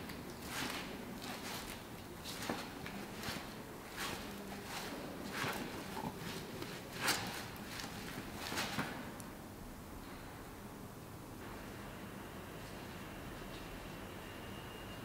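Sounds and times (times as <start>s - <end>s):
dancer scuffing on stone floor: 0.4s - 9.2s.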